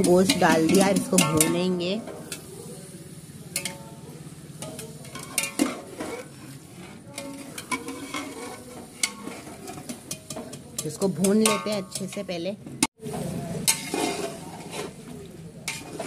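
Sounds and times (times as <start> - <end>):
metal spoon scraping cooking pot: 0.0 - 2.4, 4.6 - 12.4, 13.6 - 16.0.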